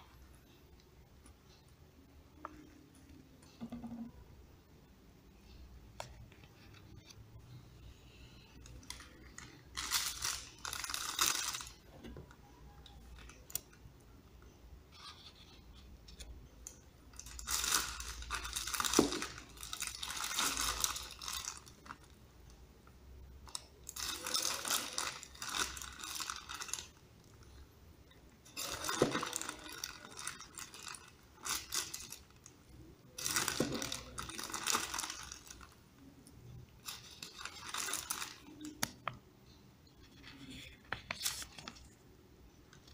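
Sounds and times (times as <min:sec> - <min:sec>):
plastic bags rustling: 0:08.7 - 0:12.0, 0:17.1 - 0:22.1, 0:23.4 - 0:27.4, 0:28.4 - 0:35.8, 0:36.8 - 0:38.8.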